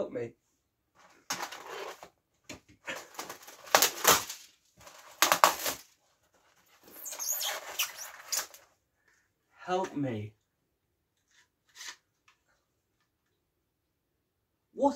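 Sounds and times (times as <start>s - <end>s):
cardboard box rustling and scraping: 1.3s - 2.1s.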